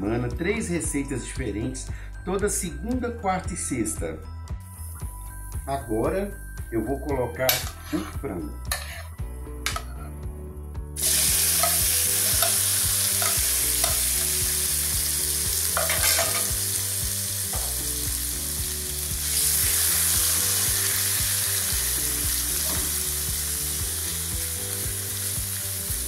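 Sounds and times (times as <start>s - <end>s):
chicken sizzling in frying pan: 11.0s - 26.0s.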